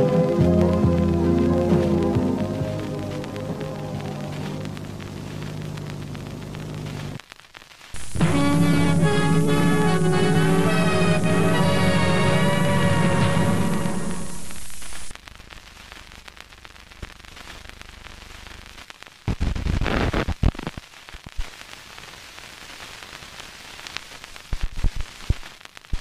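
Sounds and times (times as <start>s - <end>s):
music sting: 0.0s - 4.7s, 8.0s - 15.0s
film soundtrack hiss and crackle: 0.0s - 26.0s.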